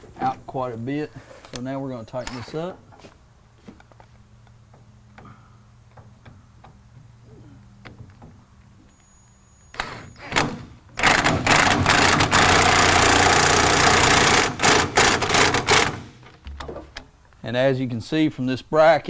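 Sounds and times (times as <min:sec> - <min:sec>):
power wrench running with clatter: 0:10.3 - 0:16.3.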